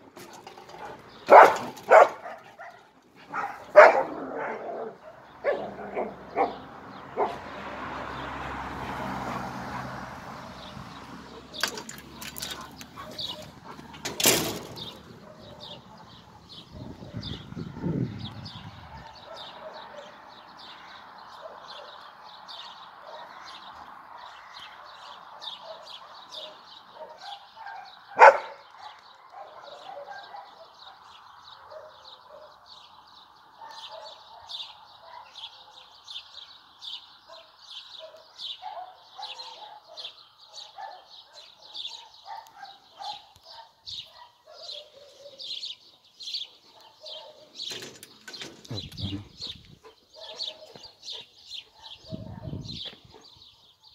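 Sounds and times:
birds chirping: 0.0s - 53.9s
dog barking: 1.3s - 7.5s, 12.4s - 14.0s, 15.2s - 18.0s, 18.8s - 20.3s, 21.3s - 32.6s, 33.6s - 35.9s, 37.3s - 45.6s, 46.4s - 47.6s, 50.1s - 53.0s.

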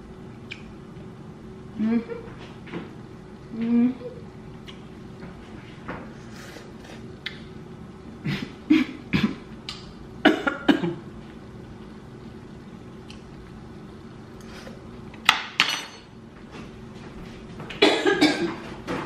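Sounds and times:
woman coughing: 8.3s - 9.4s, 10.2s - 11.0s, 17.8s - 18.6s.

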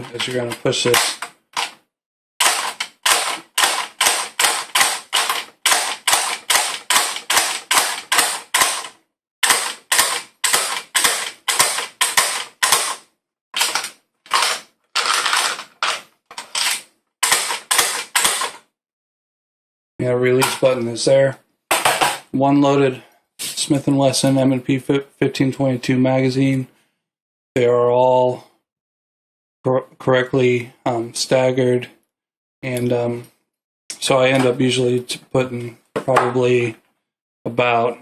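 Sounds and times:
magazine loader clicking: 2.4s - 13.0s, 13.6s - 18.6s.

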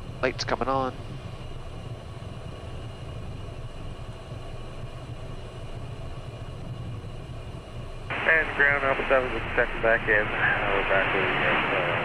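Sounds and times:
jet engines idling: 0.0s - 12.0s
high-pitched engine whines: 8.1s - 12.0s.

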